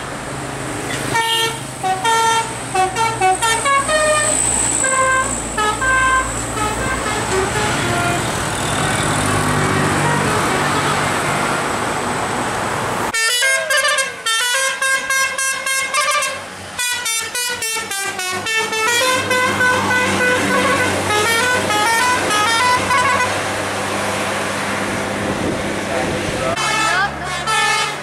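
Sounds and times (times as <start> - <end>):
engine and road noise: 0.0 - 28.0
musical air horn tune: 1.1 - 8.3, 13.1 - 23.4, 26.6 - 28.0.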